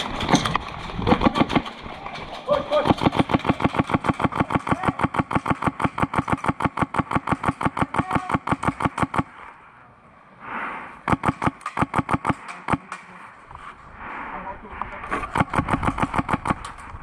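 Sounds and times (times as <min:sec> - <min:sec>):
airsoft gun firing bursts: 0:01.0 - 0:01.8, 0:02.7 - 0:09.4, 0:11.0 - 0:13.0, 0:15.2 - 0:16.8.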